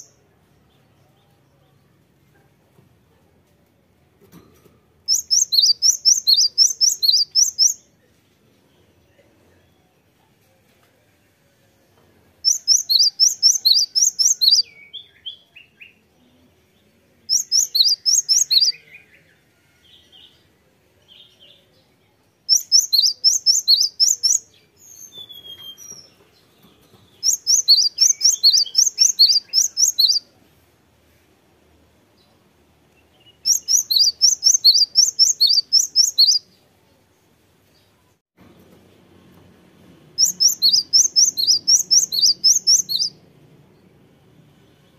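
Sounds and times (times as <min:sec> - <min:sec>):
bird singing rapid high notes: 0:05.1 - 0:07.8, 0:12.4 - 0:15.2, 0:17.3 - 0:18.8, 0:22.5 - 0:26.1, 0:27.2 - 0:30.2, 0:33.4 - 0:36.4, 0:40.2 - 0:43.2.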